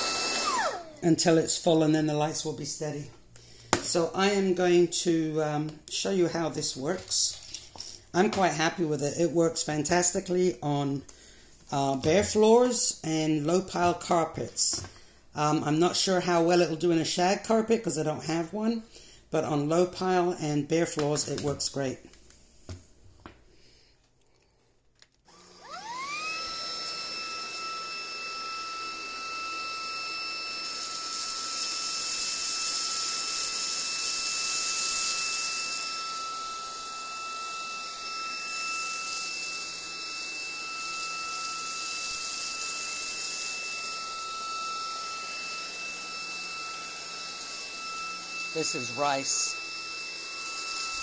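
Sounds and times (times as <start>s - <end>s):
vacuum motor whining: 0.0s - 1.7s, 25.3s - 51.0s.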